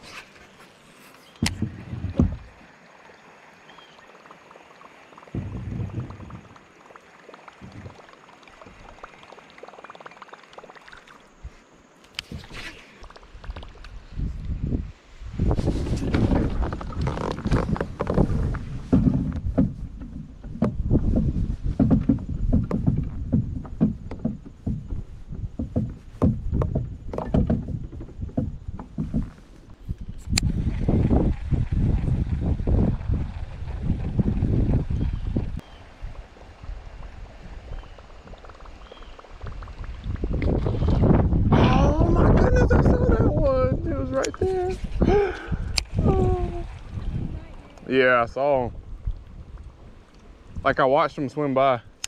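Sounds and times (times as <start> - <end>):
handling noise on a kayak: 0.0 - 2.7, 5.2 - 6.7, 15.4 - 48.0
faint water sounds: 0.0 - 52.0
kayak pedal drive knocking: 1.3 - 2.6, 5.3 - 6.6, 16.1 - 30.5
low thumps: 1.4 - 2.6, 5.3 - 6.7, 7.6 - 8.0, 15.4 - 33.2.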